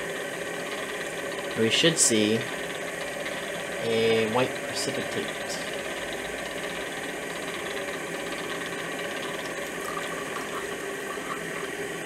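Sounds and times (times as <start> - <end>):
steady background hum: 0.0 - 12.0
liquid pouring from a beaker: 8.5 - 12.0.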